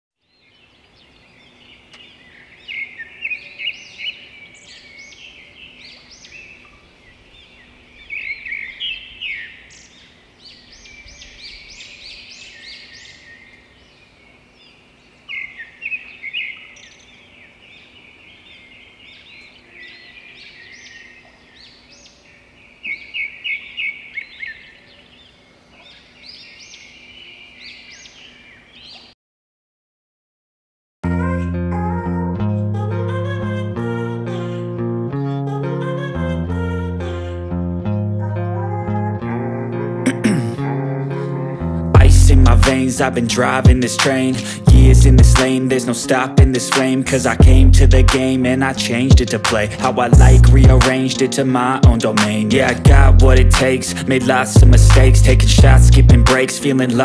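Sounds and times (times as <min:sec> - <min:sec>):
lovebirds chirping: 0:00.2 - 0:29.2, 0:41.6 - 0:57.0.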